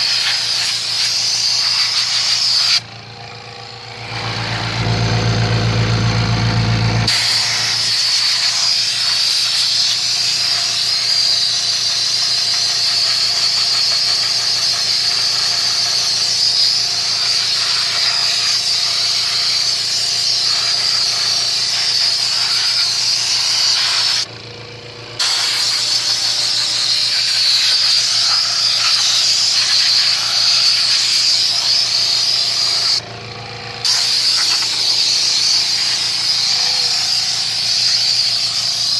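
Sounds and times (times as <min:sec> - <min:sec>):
low hum: 0:02.8 - 0:07.1
pressurised gas hissing: 0:07.1 - 0:24.3.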